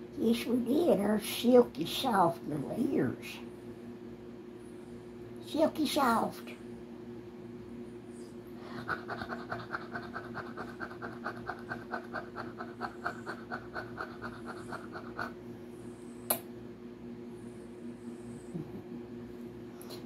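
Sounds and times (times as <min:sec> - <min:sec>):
steady low hum: 0:00.0 - 0:20.0
small dog panting: 0:08.6 - 0:16.0
sharp click: 0:16.3 - 0:16.5.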